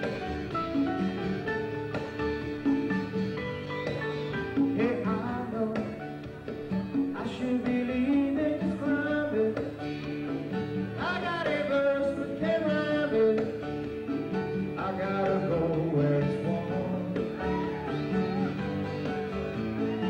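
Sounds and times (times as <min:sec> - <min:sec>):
band accompaniment: 0:00.0 - 0:20.0
strummed acoustic guitar: 0:00.0 - 0:20.0
man singing: 0:04.7 - 0:06.2, 0:07.0 - 0:09.9, 0:10.9 - 0:13.8, 0:14.7 - 0:18.6.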